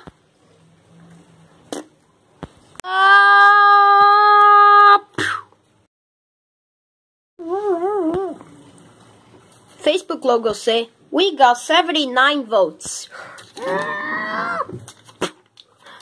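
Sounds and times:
wavering vocal cry: 13.6s - 14.8s.

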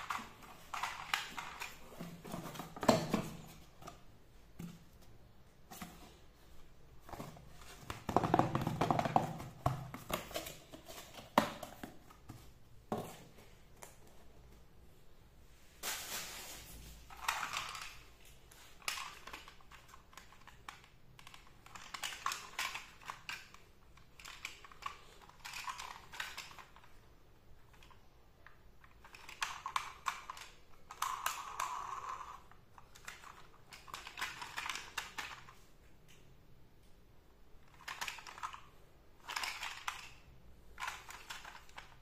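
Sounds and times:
plastic toy clicking and rattling: 0.0s - 1.9s, 17.1s - 27.0s, 28.8s - 35.6s, 37.6s - 42.0s.

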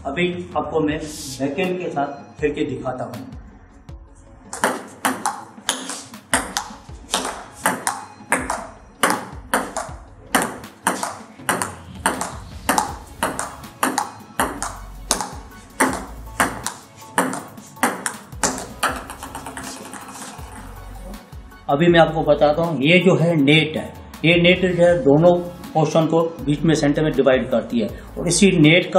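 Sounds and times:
table tennis ball clicking: 4.6s - 20.3s.

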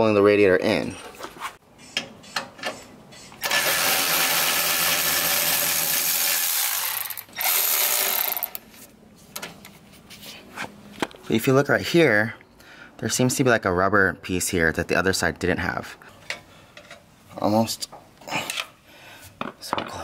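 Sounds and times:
electric ratchet running: 3.4s - 8.6s.

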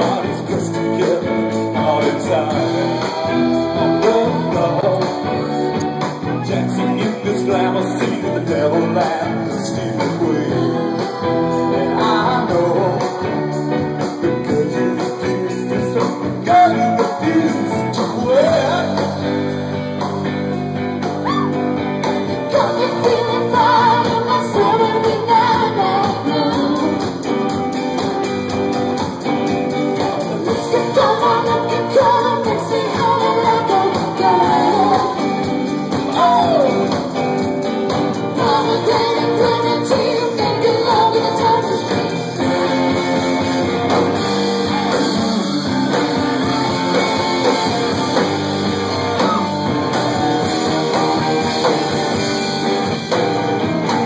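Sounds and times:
person singing: 0.0s - 19.2s, 22.4s - 27.4s, 30.0s - 37.2s, 38.2s - 42.6s
rock band playing: 0.0s - 54.0s.

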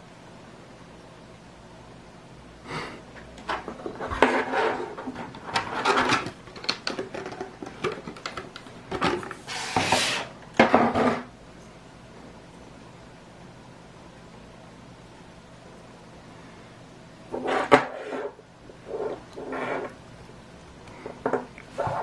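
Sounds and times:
plastic packaging clicks and rustles: 5.2s - 9.4s.

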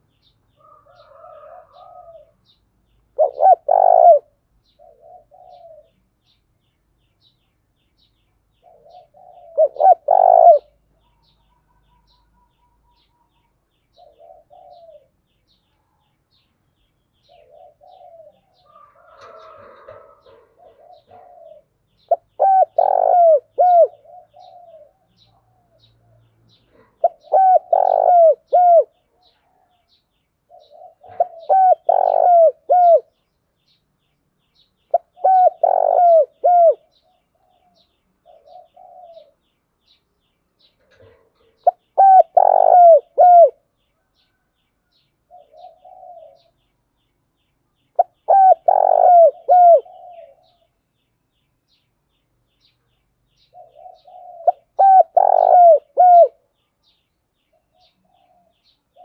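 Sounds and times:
dove cooing: 0.6s - 2.5s, 3.1s - 6.0s, 8.6s - 13.1s, 13.9s - 15.2s, 17.2s - 29.9s, 30.5s - 33.2s, 34.9s - 39.5s, 40.8s - 43.7s, 45.3s - 46.6s, 48.0s - 50.7s, 53.4s - 56.5s, 57.7s - 59.0s.

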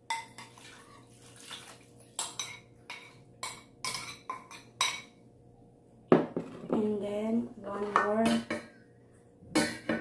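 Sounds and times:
spoon clinking against bowl: 2.2s - 5.2s.

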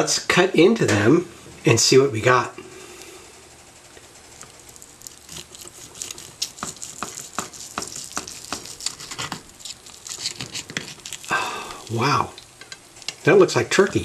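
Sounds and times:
knife sawing through crisp skin: 5.0s - 12.0s.

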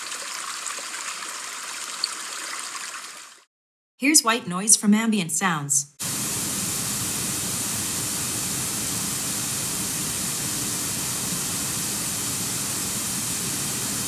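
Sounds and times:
steady white noise hiss: 6.0s - 14.0s.

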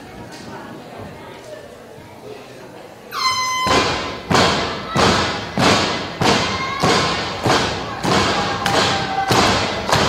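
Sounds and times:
rhythmic heavy thuds: 3.6s - 10.0s.

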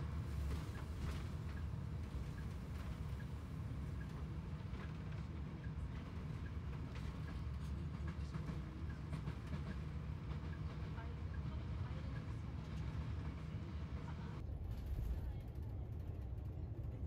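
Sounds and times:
faint light ticks: 0.4s - 9.8s.

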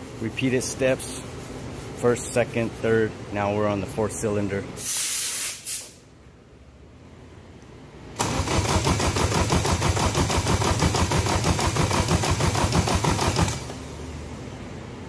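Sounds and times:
starter motor cranking engine: 8.2s - 13.8s.

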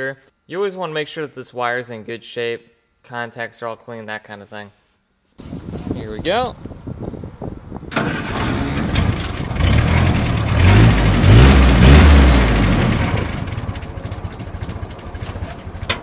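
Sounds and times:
car engine starting and revving: 7.9s - 15.4s
engine idling: 8.9s - 16.0s.

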